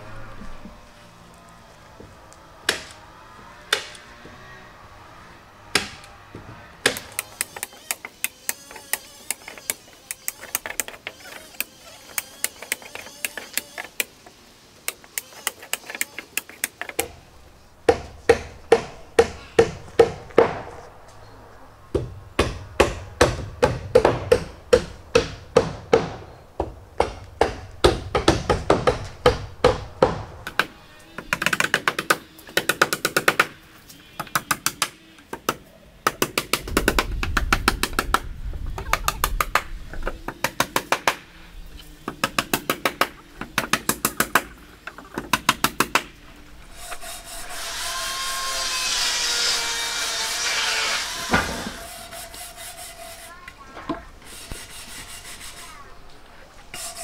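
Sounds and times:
hammers driving nails into wood: 2.6s - 3.0s, 3.7s - 4.0s, 5.7s - 6.1s, 6.8s - 14.1s, 17.9s - 20.7s, 22.0s - 33.6s, 34.2s - 38.2s, 40.3s - 41.2s, 42.1s - 46.1s.

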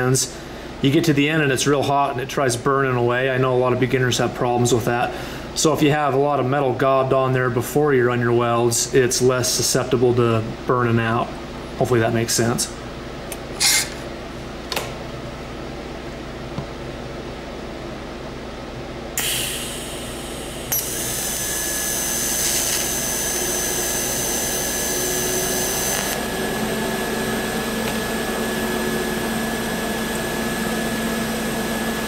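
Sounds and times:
welding arc hissing buzz: 19.2s - 31.4s.

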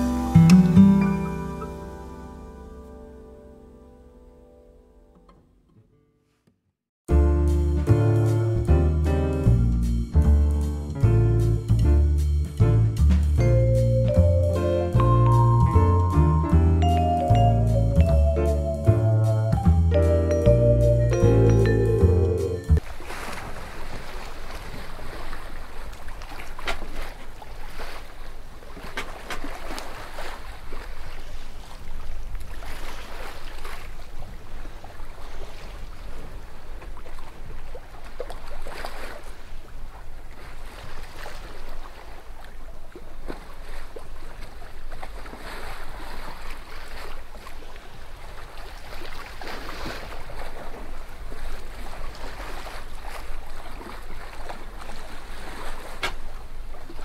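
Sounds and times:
water rushing along boat hull: 12.7s - 57.0s.

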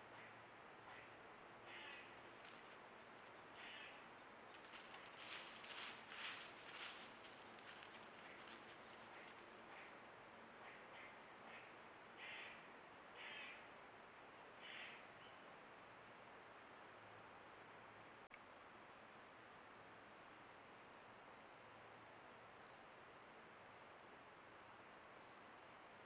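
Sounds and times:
high insect drone: 0.0s - 25.6s
insects chirping faintly: 0.0s - 26.0s.

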